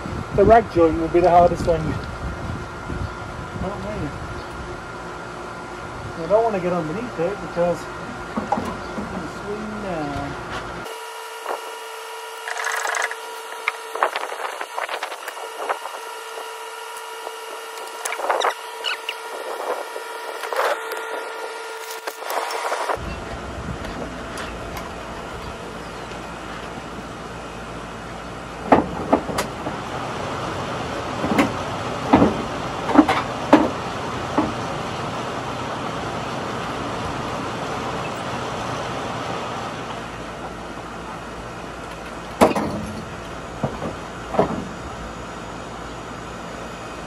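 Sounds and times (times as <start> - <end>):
steady background noise: 0.0 - 47.0
metal tools clanking on car parts: 41.9 - 44.6.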